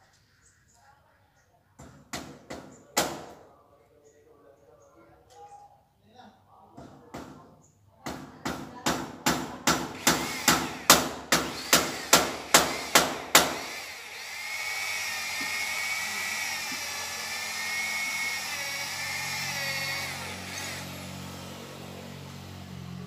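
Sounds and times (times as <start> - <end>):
electric drill whining: 10.0 - 21.4.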